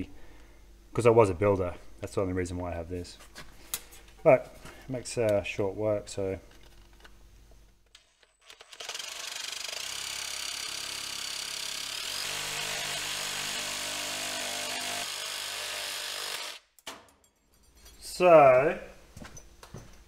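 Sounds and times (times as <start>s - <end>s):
power shear cutting sheet metal: 8.6s - 16.6s.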